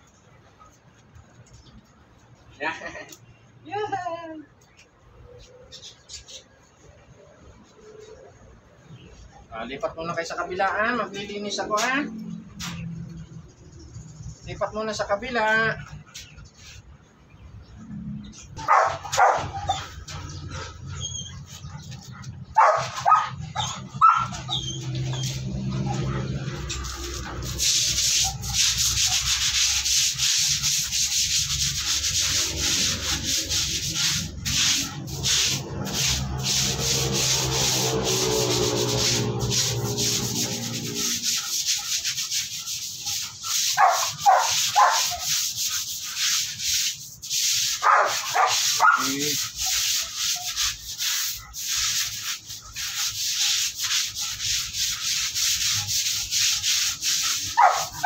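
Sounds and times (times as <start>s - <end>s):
scrubbing wet concrete floor: 14.4s - 58.0s.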